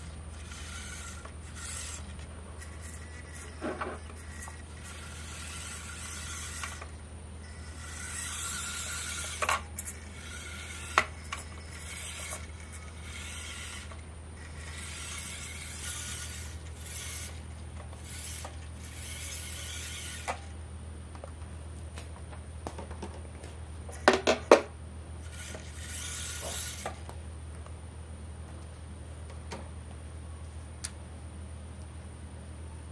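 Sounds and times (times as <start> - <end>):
toy truck motor and gears whirring: 0.0 - 20.6, 25.2 - 27.1.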